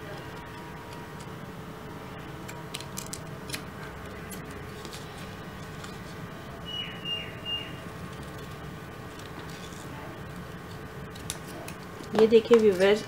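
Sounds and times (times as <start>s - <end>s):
scissors cutting paper card: 10.6s - 13.0s.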